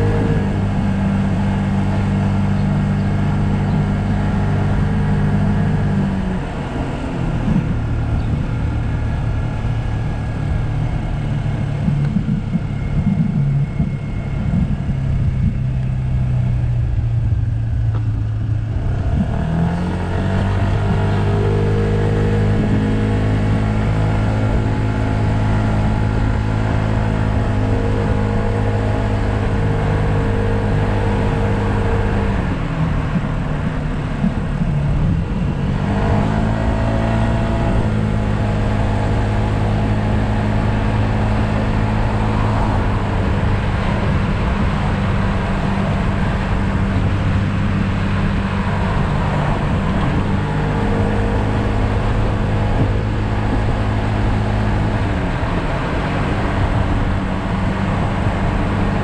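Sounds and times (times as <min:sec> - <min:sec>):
scooter engine running: 0:00.0 - 0:36.3.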